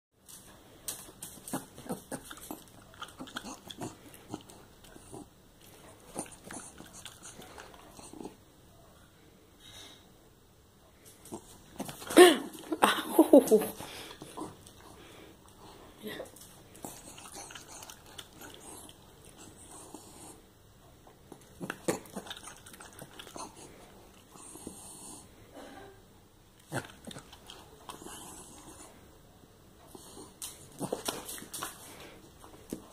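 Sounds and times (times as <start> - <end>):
dog chewing wetly: 0.3 - 8.4, 16.5 - 20.4, 21.1 - 25.0.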